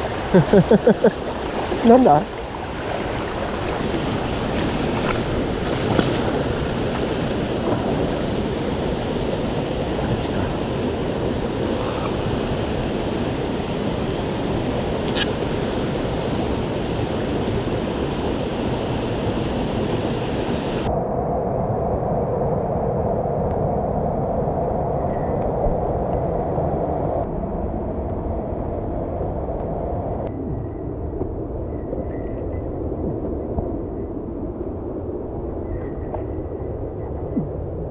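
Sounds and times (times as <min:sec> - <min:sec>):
stream water rushing: 0:00.0 - 0:20.9.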